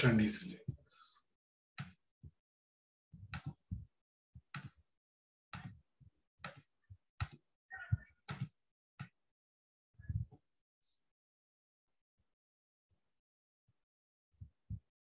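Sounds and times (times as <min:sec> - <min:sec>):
computer clicks and taps: 0:04.5 - 0:04.8, 0:06.4 - 0:07.4.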